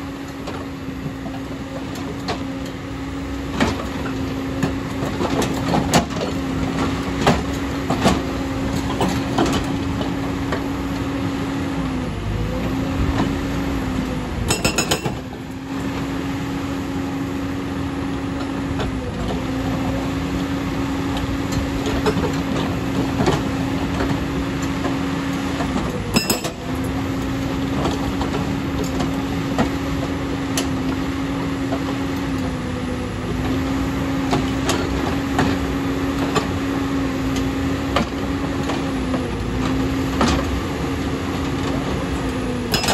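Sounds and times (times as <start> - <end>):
excavator mechanical drone: 0.0 - 42.9
hydraulic breaker hammering rock: 14.4 - 15.3, 25.6 - 26.8, 42.5 - 42.9
metallic clanks: 14.5 - 15.2.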